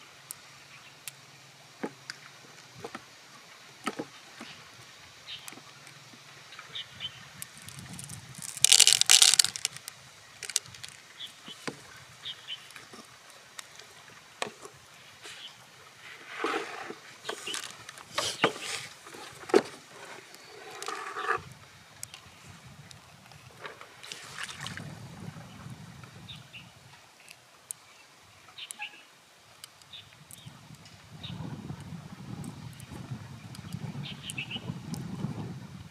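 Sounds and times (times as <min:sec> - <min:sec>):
pearls clicking against shell: 0:07.4 - 0:11.0, 0:17.4 - 0:17.9
plastic gloves rustling: 0:07.5 - 0:11.0, 0:17.3 - 0:18.9.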